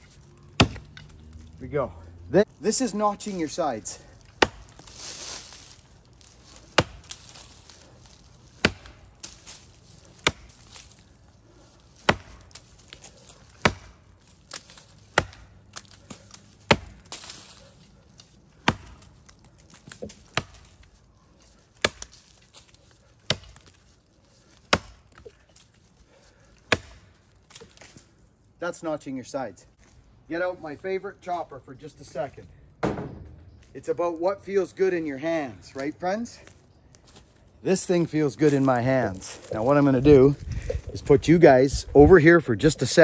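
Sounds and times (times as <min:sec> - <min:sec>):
axe chopping tree trunk: 0:00.4 - 0:01.4, 0:04.1 - 0:11.1, 0:11.8 - 0:23.8, 0:24.5 - 0:25.7, 0:26.6 - 0:28.0, 0:32.8 - 0:33.4.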